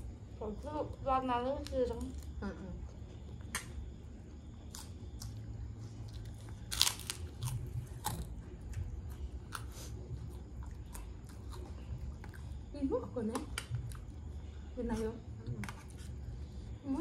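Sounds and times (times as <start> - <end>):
crunching crackers: 4.5 - 12.5.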